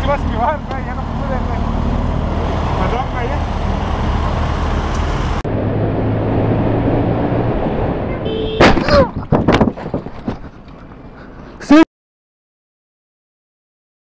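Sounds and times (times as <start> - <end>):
wind noise: 5.6 - 10.6
motorcycle crash impact: 8.5 - 10.4.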